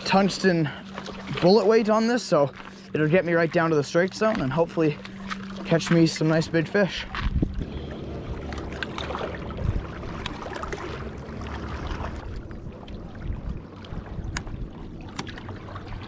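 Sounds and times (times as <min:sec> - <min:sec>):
wind buffeting microphone: 0:06.4 - 0:16.0.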